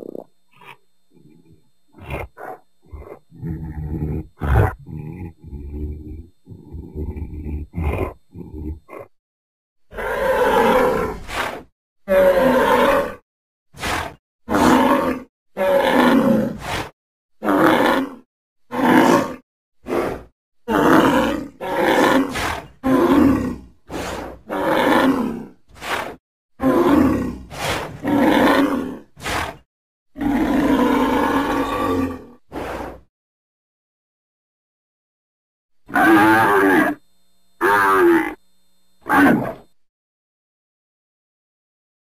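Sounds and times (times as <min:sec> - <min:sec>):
deep animal bellows: 0:00.5 - 0:09.1.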